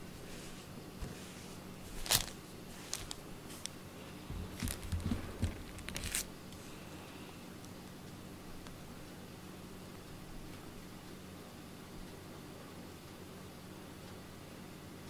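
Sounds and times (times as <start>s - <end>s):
faint low hum: 0.0s - 15.0s
soft low thumps: 4.2s - 5.7s.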